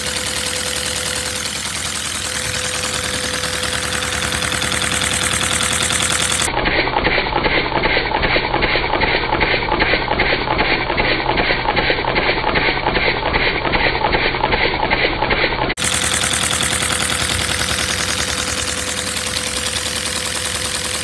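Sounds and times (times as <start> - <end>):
toy engine plastic clatter: 5.4 - 16.6.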